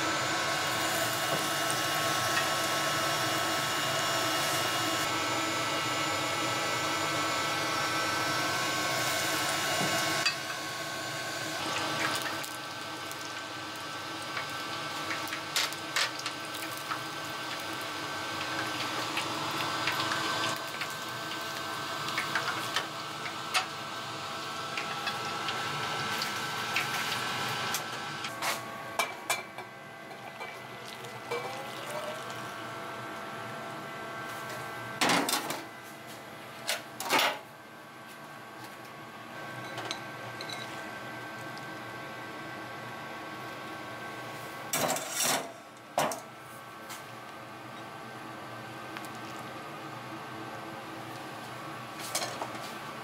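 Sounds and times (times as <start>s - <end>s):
fritters deep-frying in oil: 9.1s - 28.4s.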